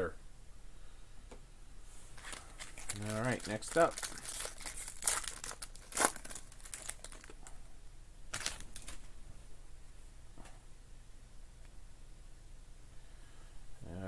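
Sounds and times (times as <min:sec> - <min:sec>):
foil wrapper tearing and crinkling: 0:02.2 - 0:07.5, 0:08.3 - 0:09.1.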